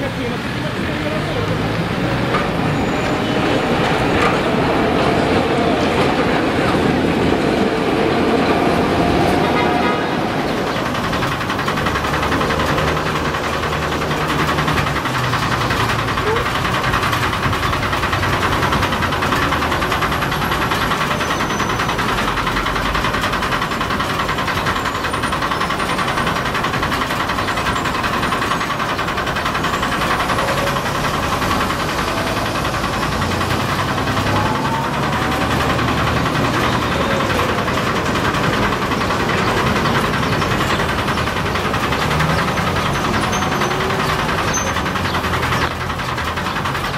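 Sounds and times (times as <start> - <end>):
traffic rumble: 0.0 - 46.9
tram wheels squealing: 0.0 - 46.9.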